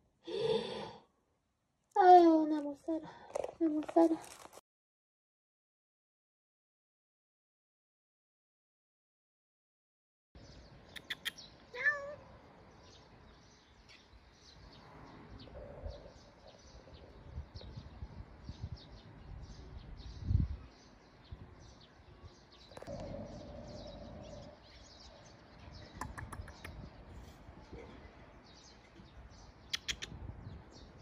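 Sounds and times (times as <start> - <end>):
small birds chirping: 10.4 - 31.0.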